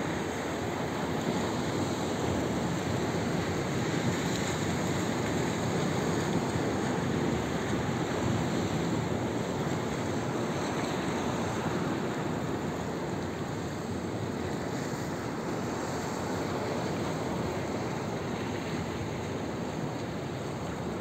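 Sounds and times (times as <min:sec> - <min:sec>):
surf breaking on rocky shore: 0:00.0 - 0:21.0.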